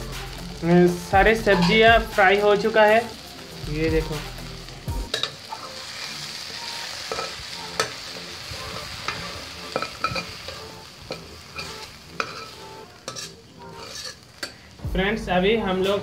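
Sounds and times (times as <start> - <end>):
oil sizzling: 0.0 - 16.0
spatula scraping a steel pan: 1.5 - 1.9, 8.6 - 14.6.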